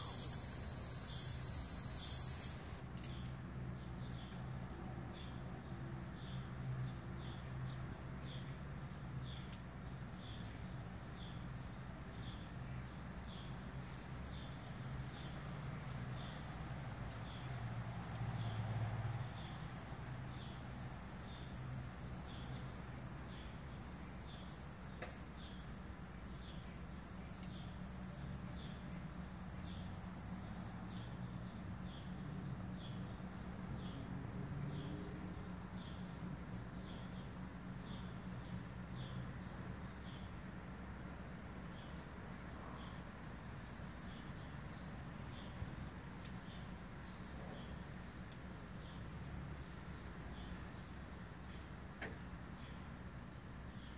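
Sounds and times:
insect buzzing trill: 0.0s - 3.3s, 10.1s - 32.1s, 41.7s - 51.8s
insect chirping: 0.0s - 53.9s.

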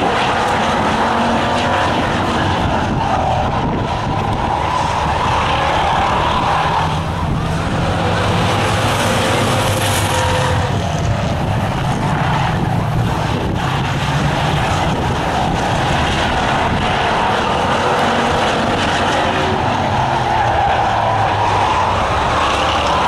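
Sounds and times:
race car engines at speed: 0.0s - 23.0s.

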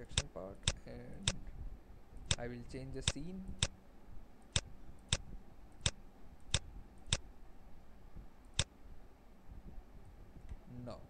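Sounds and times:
computer mouse clicking: 3.0s - 3.8s, 4.5s - 7.2s.

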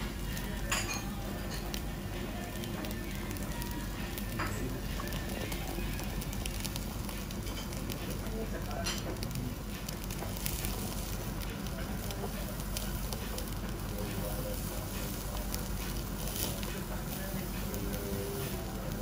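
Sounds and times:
beef sizzling on grill: 0.0s - 19.0s
fat crackling and popping: 0.0s - 19.0s.

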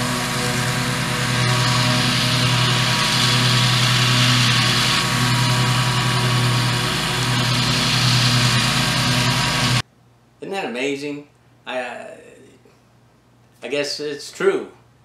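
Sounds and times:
riding lawn mower engine: 0.0s - 9.8s.

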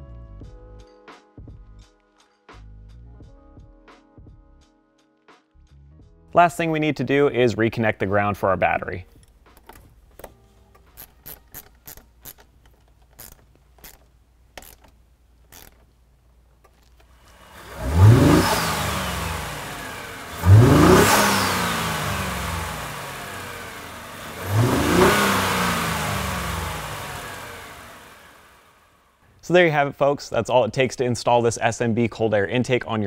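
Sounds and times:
car engine revving: 17.2s - 28.8s.

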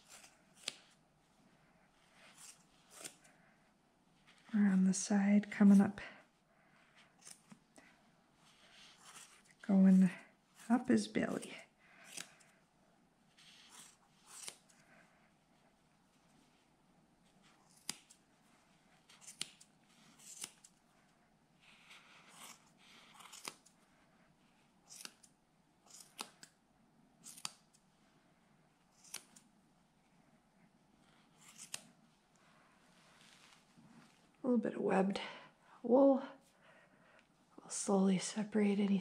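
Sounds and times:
small scissors snipping wool: 0.0s - 1.0s, 2.3s - 3.3s, 7.0s - 7.6s, 12.0s - 12.5s, 13.4s - 14.8s, 17.4s - 18.2s, 19.1s - 20.8s, 21.8s - 23.7s, 24.8s - 26.6s, 27.2s - 27.8s, 28.9s - 29.5s, 31.0s - 31.9s
wool rustling: 30.0s - 34.4s.

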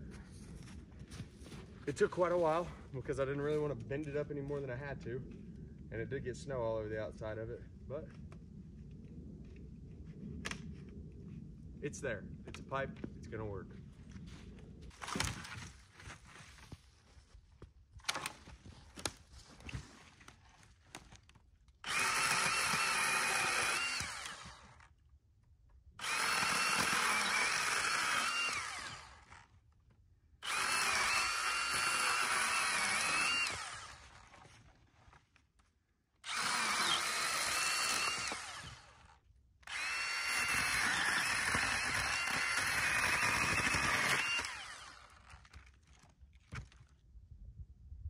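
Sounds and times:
electric chainsaw cutting branches: 21.2s - 25.0s, 26.0s - 29.6s, 30.4s - 35.3s, 36.2s - 46.8s.

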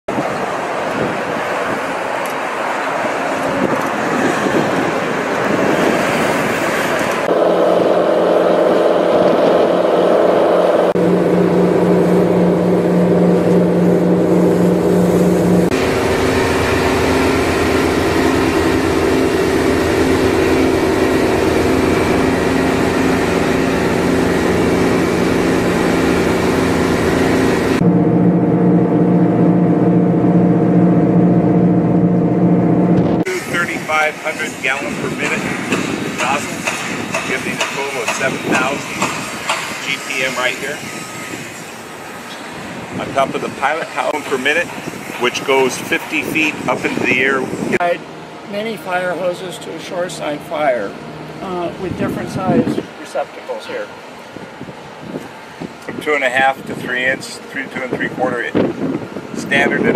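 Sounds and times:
wind: 0.0s - 59.9s
rushing water: 0.1s - 27.8s
boat engines droning: 0.1s - 59.9s.

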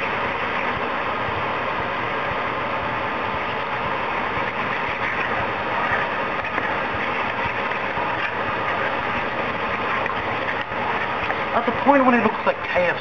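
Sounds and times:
saucepan mixture hissing: 1.8s - 13.0s
spoon stirring and scraping paste: 3.6s - 12.8s.

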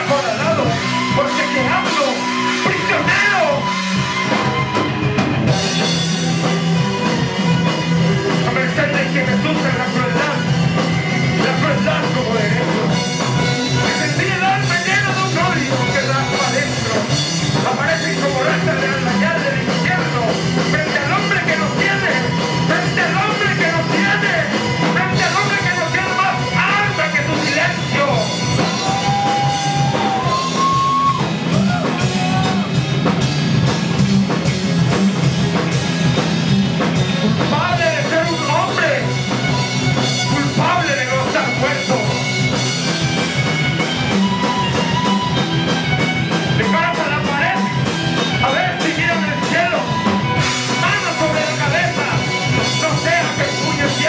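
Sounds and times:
drum kit: 0.0s - 54.0s
electric guitar: 0.0s - 54.0s.

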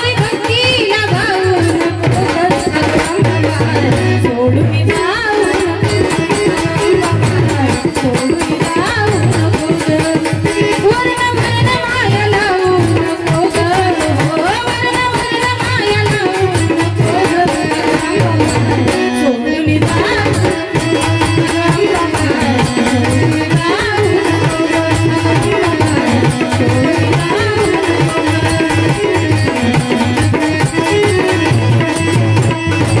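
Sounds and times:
hand drum beat: 19.8s - 33.0s.

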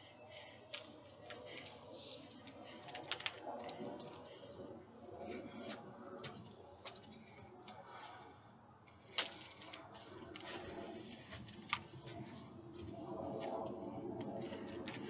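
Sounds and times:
hula hoop taps and clicks: 0.7s - 4.3s, 9.1s - 12.2s.

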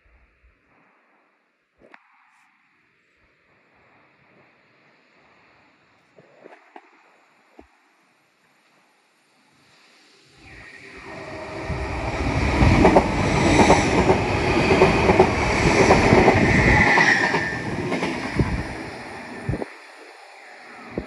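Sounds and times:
train passing at speed: 9.9s - 21.0s
high squeal: 10.4s - 14.5s, 15.5s - 17.8s.

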